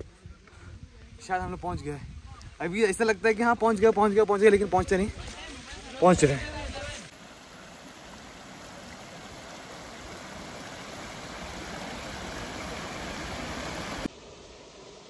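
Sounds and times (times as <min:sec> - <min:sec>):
waterfall rushing: 0:05.4 - 0:14.5.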